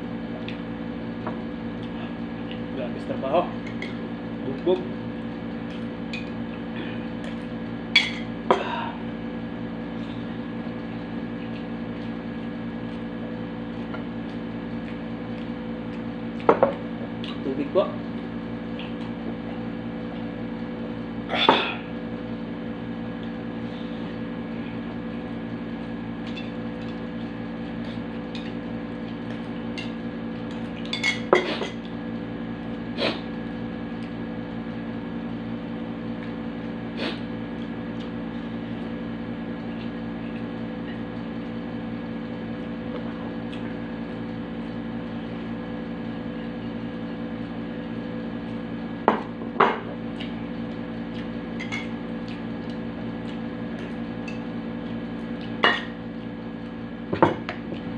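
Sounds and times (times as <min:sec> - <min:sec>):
steady hum: 0:00.0 - 0:46.0.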